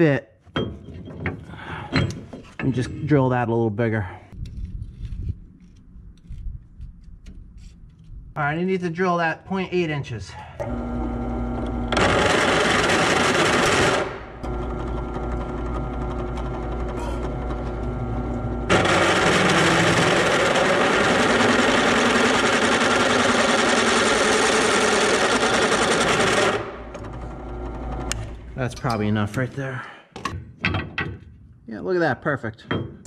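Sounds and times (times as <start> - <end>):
drill bit cutting steel: 10.6 - 17.5, 18.7 - 26.7
drill press motor running: 10.6 - 28.4.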